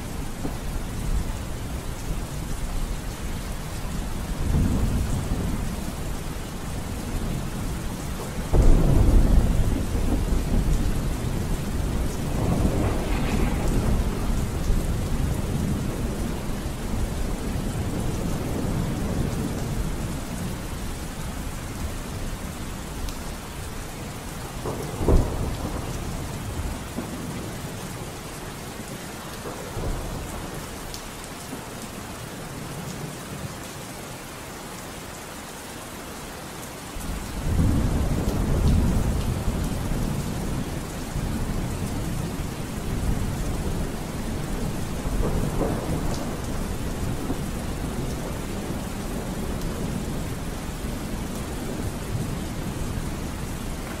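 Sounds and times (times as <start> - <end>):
low rumble of thunder: 0.0 - 28.2, 29.3 - 31.0, 37.0 - 54.0
steady rain: 0.0 - 54.0
thunder crack: 8.5 - 16.4.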